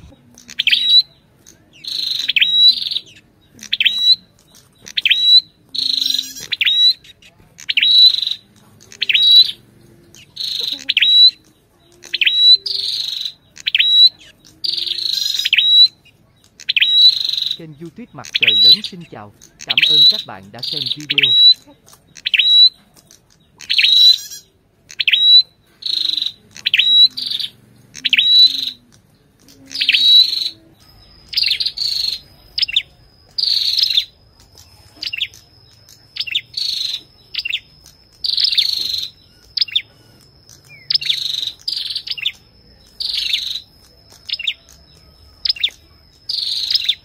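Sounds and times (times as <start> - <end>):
bird singing sharp high notes: 0.0 - 47.0
thin steady high tone: 25.4 - 47.0.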